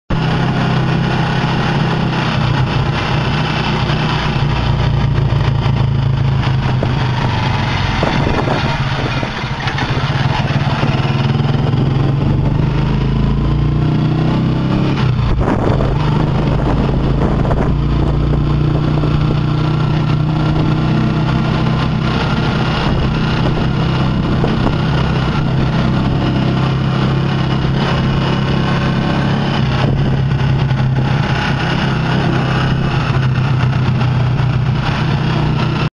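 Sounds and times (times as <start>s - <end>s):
motorcycle engine running: 0.1s - 35.9s
road noise: 0.1s - 35.9s.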